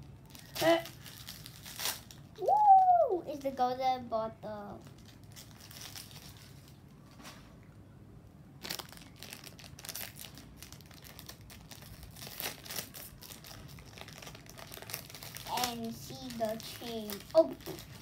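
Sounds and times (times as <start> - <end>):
plastic packet crinkling: 0.2 - 2.4, 4.8 - 6.8, 8.6 - 18.0.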